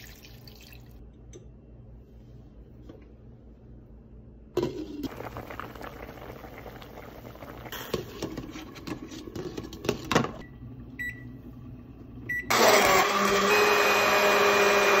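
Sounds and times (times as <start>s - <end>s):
soup bubbling in a pot: 4.8s - 9.7s
immersion blender running: 12.5s - 15.0s.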